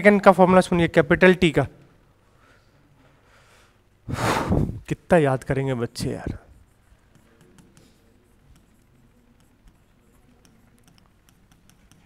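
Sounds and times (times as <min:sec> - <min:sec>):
pen scratching while writing: 0:06.6 - 0:12.0.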